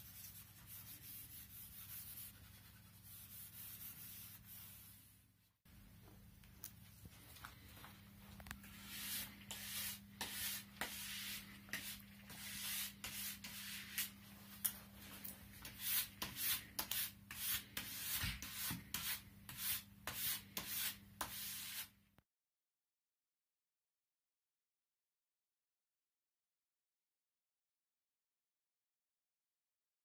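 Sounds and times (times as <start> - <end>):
brush scrubbing a ski: 0.0 - 5.2, 8.7 - 14.1.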